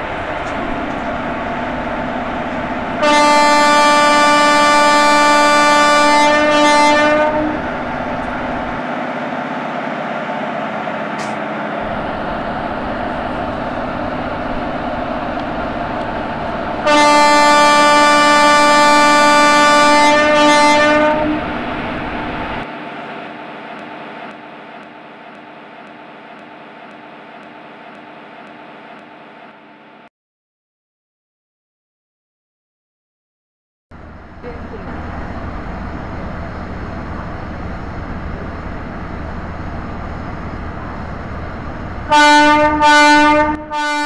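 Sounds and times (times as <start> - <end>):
train running rumble: 0.0 - 29.8, 33.9 - 44.0
locomotive horn blasts: 2.9 - 8.4, 16.8 - 21.6, 42.1 - 44.0.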